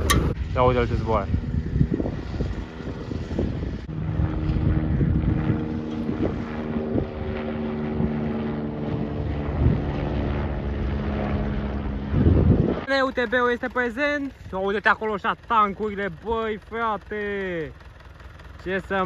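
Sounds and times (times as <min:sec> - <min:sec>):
wind rumble on microphone: 0:00.0 - 0:12.9
helicopter rotor and engine drone: 0:00.0 - 0:19.0.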